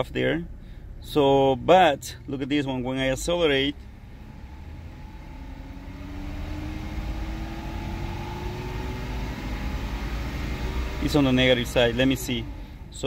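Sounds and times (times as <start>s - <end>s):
car engine revving: 2.9s - 13.0s.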